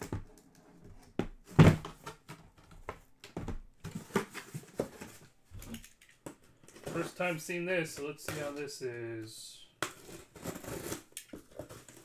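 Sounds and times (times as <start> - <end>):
cardboard boxes thumping on table: 1.2 - 5.1.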